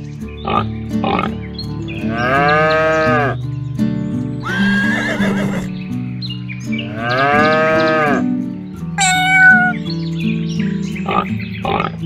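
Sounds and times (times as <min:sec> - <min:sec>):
background music: 0:00.0 - 0:12.0
farm animal calls: 0:04.4 - 0:05.7, 0:06.9 - 0:08.2, 0:09.0 - 0:09.8.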